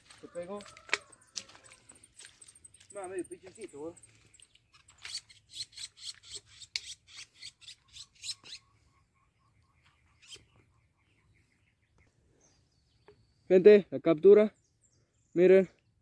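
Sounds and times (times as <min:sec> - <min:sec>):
brush rustling and scraping: 0:03.5 - 0:08.4.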